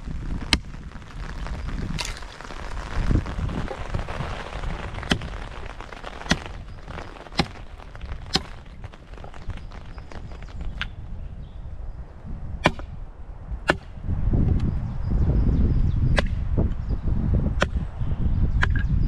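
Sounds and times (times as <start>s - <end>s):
hatchet chopping wood: 12.6s - 12.9s.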